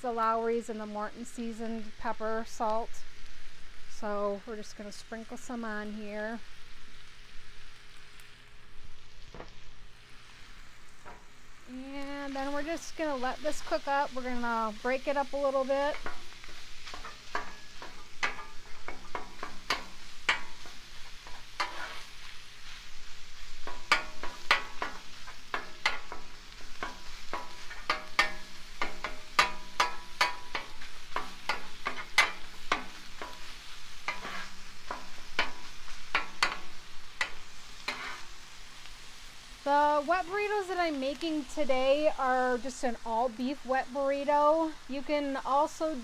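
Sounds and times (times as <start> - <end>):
meat sizzling on griddle: 0.0 - 46.0
spatula scraping metal griddle: 15.0 - 38.4.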